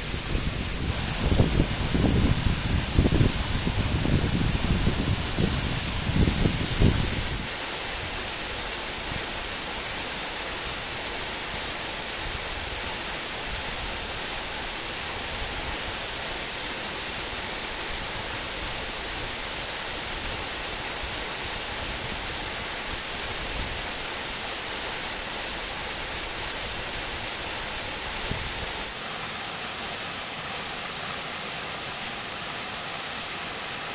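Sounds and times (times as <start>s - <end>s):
waterfall rushing: 0.0s - 33.9s.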